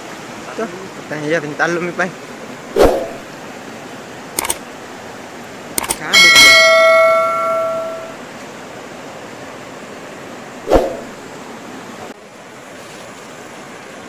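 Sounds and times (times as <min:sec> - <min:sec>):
river rushing: 0:00.0 - 0:14.0
notification bell ding: 0:06.2 - 0:08.2.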